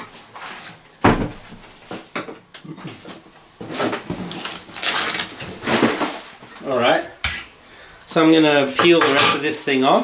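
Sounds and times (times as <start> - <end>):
paper rustling and crinkling: 3.7 - 6.4.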